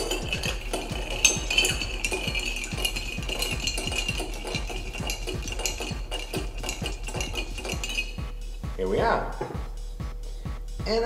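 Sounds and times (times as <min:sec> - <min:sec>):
ice clinking in glass: 0:00.0 - 0:08.4.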